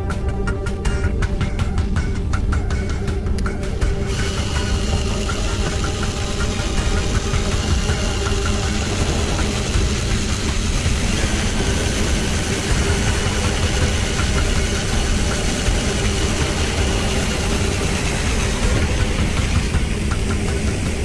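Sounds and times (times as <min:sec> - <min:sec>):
power drill boring into metal: 0:04.0 - 0:21.0.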